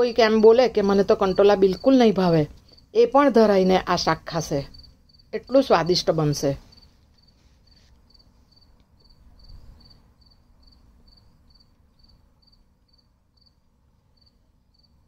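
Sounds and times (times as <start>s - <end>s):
cricket chirping: 4.5s - 5.8s, 6.7s - 15.0s.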